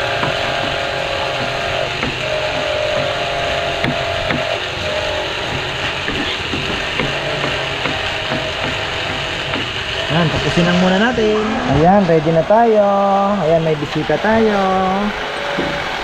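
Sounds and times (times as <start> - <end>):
steady machine drone: 0.0 - 16.0
knife tapping on plastic board: 1.4 - 3.1.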